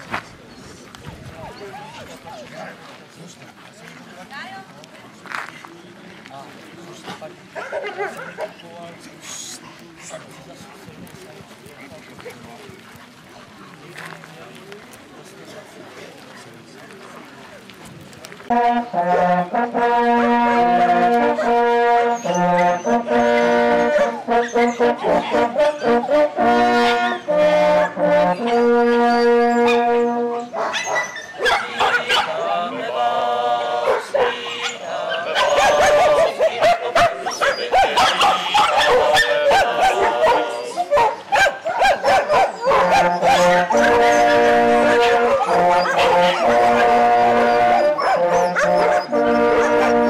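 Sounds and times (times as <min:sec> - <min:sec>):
dogs barking loudly: 0:07.6 - 0:08.6, 0:21.0 - 0:27.2, 0:27.8 - 0:32.5, 0:33.8 - 0:50.0
hunting horns playing fanfare: 0:18.5 - 0:30.6, 0:42.6 - 0:50.0.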